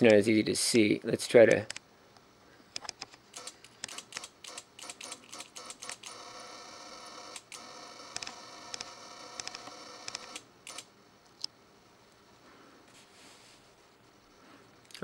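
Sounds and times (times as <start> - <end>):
electric arc crackling and buzzing: 3.3 - 10.9.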